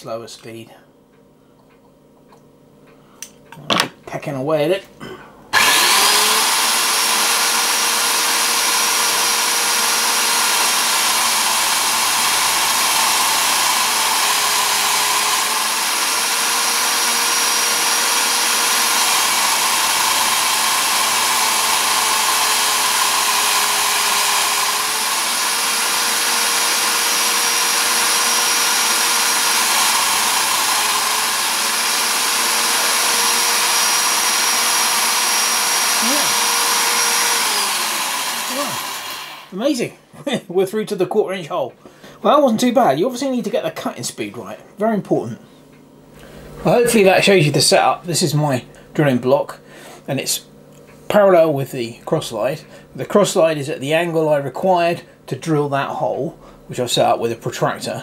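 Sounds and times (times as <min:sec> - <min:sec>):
electric drill running: 0:05.6 - 0:39.6.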